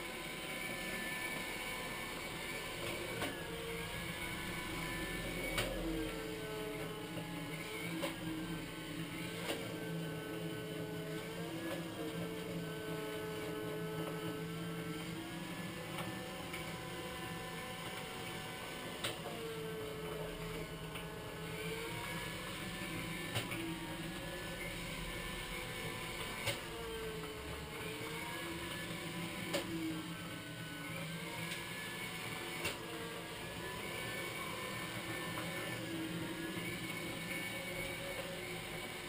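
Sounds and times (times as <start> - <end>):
robot mop motor whine: 0.0 - 39.0
low hum: 1.4 - 13.1.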